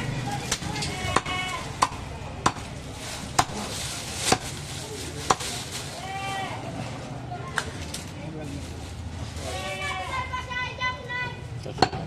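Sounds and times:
cleaver chopping meat and bone: 0.5s - 2.7s, 3.3s - 3.7s, 4.3s - 4.6s.

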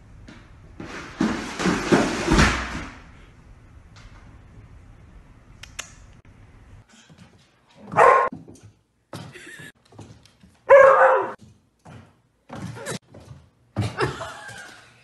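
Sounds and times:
dog barking: 7.9s - 8.3s, 10.7s - 11.4s.

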